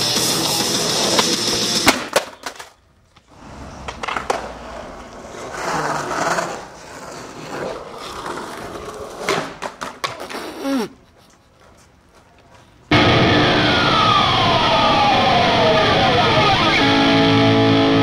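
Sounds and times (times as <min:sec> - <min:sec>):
skateboard wheels rolling: 0:00.0 - 0:17.8
skateboard clacking on concrete: 0:00.3 - 0:03.2, 0:03.8 - 0:10.6.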